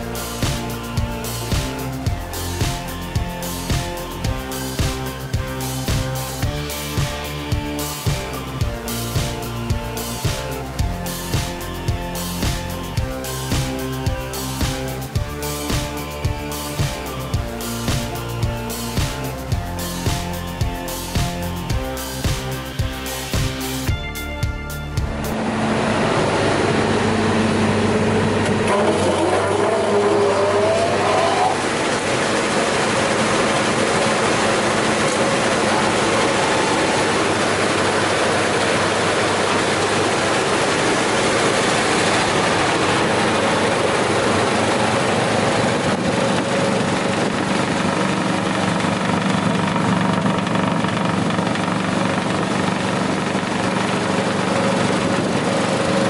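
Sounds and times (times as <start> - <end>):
wood chipper whirring: 25.4 - 56.0.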